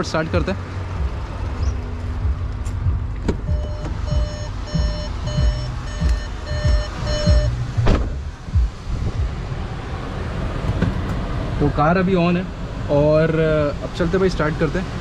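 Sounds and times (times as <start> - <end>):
low buffeting rumble: 0.0 - 15.0
car door shutting: 2.7 - 8.3, 10.6 - 11.3
car warning chime beeping: 3.5 - 7.8.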